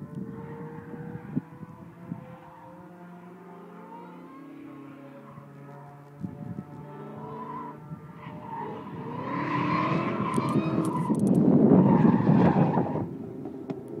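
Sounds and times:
tyres skidding and squealing: 7.0 - 13.1.

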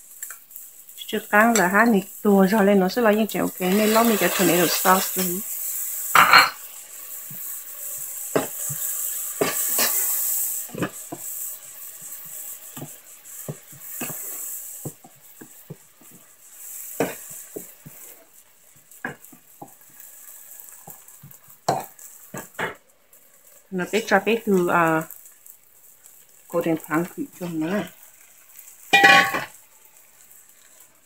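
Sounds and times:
vegetables sizzling in a frying pan: 0.0 - 31.0
spatula scraping and tapping a pan: 6.2 - 11.4, 12.0 - 22.8, 28.6 - 29.6.

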